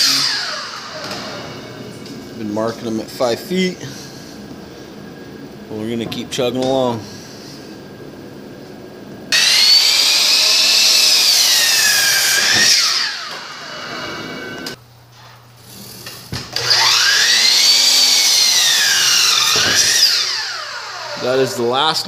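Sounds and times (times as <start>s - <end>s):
miter saw cutting wood: 0.0s - 1.8s, 9.3s - 14.8s, 16.6s - 21.7s.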